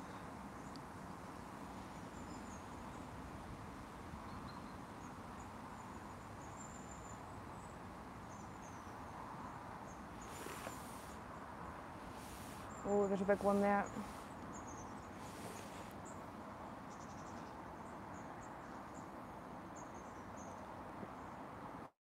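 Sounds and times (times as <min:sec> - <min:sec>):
light wind rumble: 0:00.0 - 0:20.2
brief rush of hiss: 0:10.2 - 0:11.2, 0:12.0 - 0:14.4, 0:15.1 - 0:16.1.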